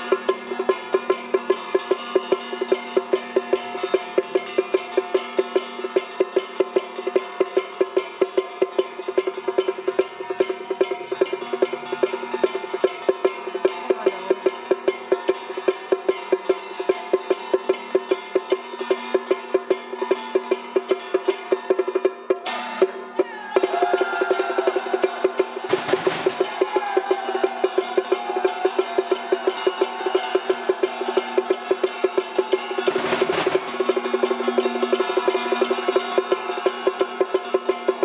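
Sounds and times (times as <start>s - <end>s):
sharp clanking strikes: 17.6s - 36.6s.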